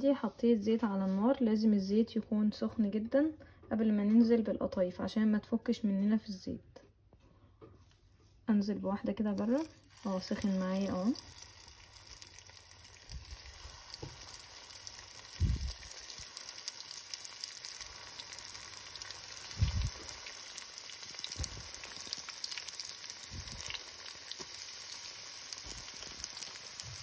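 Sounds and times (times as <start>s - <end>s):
food deep-frying in hot oil: 9.3s - 27.0s.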